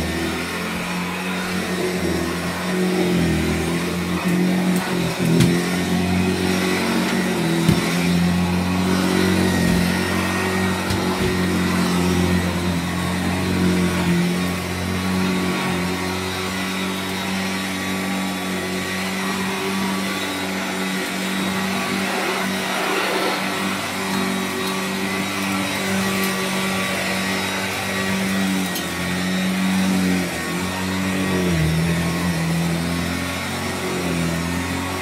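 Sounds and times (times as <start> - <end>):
vacuum cleaner running on carpet: 0.0 - 35.0.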